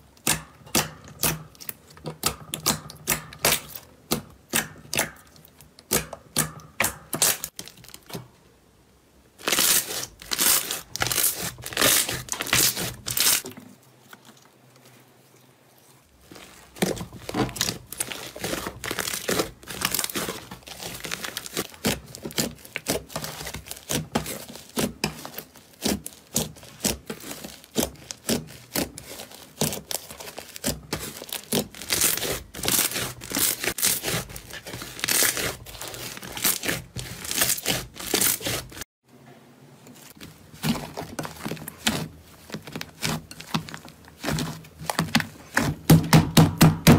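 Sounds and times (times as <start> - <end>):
hands squishing slime: 0.0 - 8.2, 9.4 - 13.5, 16.1 - 38.8, 40.1 - 46.6
slime popping and crackling: 9.4 - 13.5, 16.2 - 38.8.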